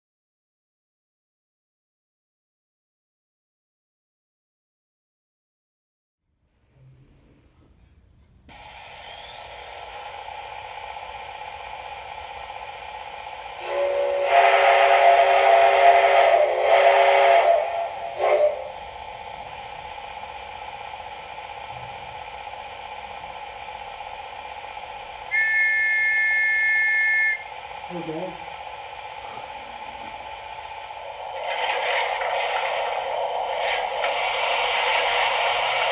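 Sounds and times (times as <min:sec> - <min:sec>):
steam hiss: 0:08.5 - 0:35.9
short whistle toot: 0:09.0 - 0:09.9, 0:25.3 - 0:27.5
deep chime whistle: 0:25.3 - 0:27.5
high two-note whistle: 0:25.3 - 0:27.5.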